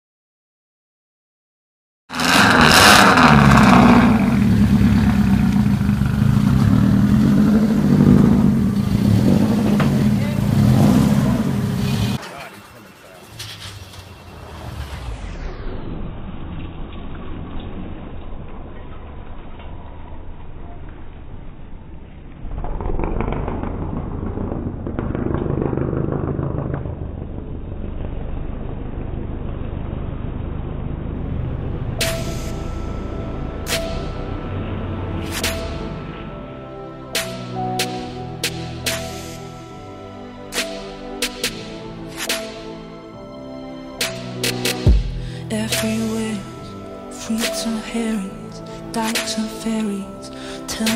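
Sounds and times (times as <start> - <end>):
loud rush of noise: 2.1 - 17.5, 21.4 - 47.9
rally car engine running hard: 2.1 - 19.2
engine pops and crackles: 2.8 - 14.2, 22.2 - 30.5.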